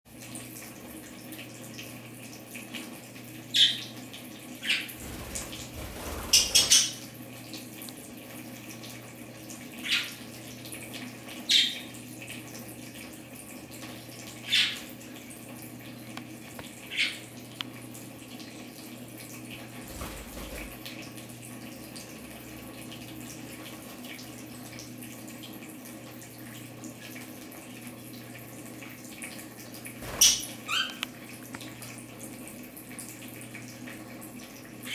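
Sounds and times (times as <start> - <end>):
water trickling and splashing: 0.1 - 34.9
budgerigars chirping: 6.3 - 7.0.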